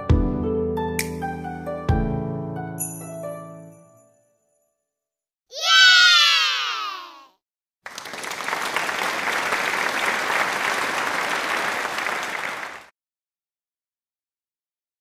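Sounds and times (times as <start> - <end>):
crowd applauding: 7.8 - 12.9.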